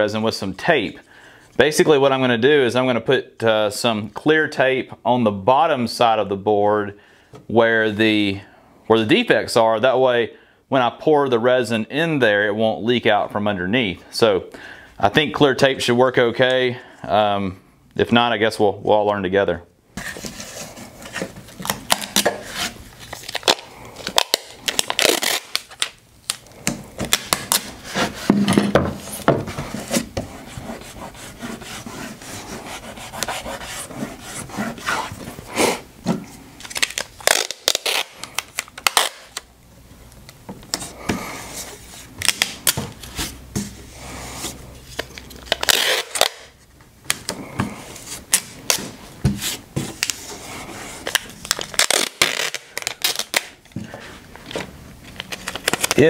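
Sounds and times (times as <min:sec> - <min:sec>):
tape rubbed onto wood: 0:29.0 - 0:35.8
tape pulled from dispenser: 0:36.6 - 0:39.5, 0:44.9 - 0:46.5, 0:51.0 - 0:53.6.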